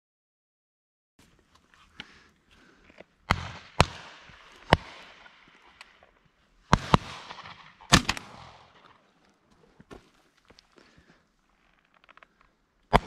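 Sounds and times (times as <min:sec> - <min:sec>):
shotgun shots echoing: 0:03.2 - 0:09.1.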